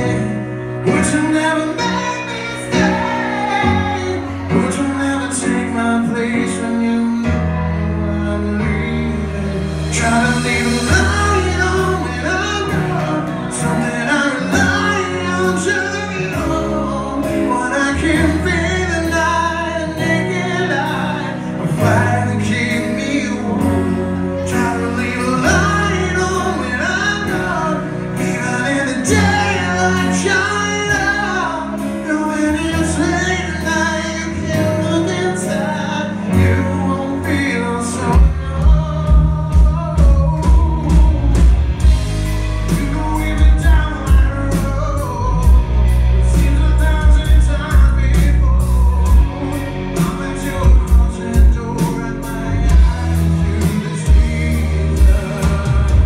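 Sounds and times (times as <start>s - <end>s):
man singing lead: 0.0s - 56.0s
rock band guitar and drums: 0.0s - 56.0s.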